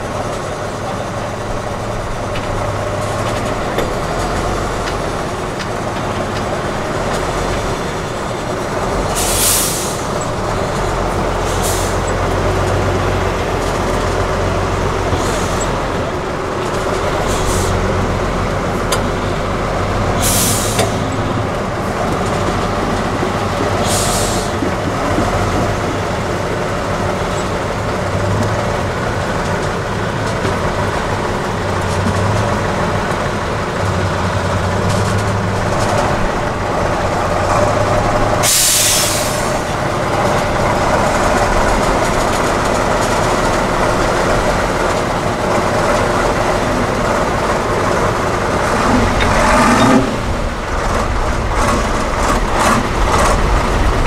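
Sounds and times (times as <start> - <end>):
truck engine running under load: 0.0 - 54.0
air brake hisses: 9.2 - 10.1, 20.2 - 21.0, 23.8 - 24.6, 38.4 - 39.6.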